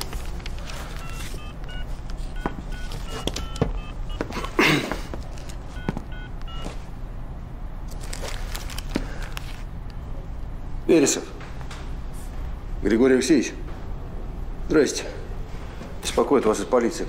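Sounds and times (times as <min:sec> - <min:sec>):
phone keypad beeps: 0:01.0 - 0:04.2, 0:05.8 - 0:06.7.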